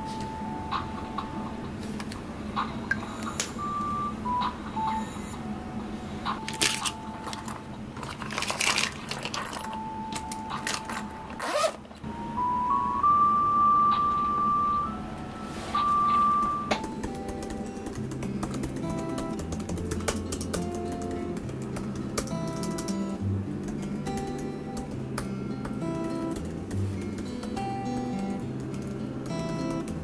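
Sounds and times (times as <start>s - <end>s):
soft background music: 0.0s - 30.0s
pens clicking and rustling: 6.3s - 11.8s, 16.8s - 23.1s.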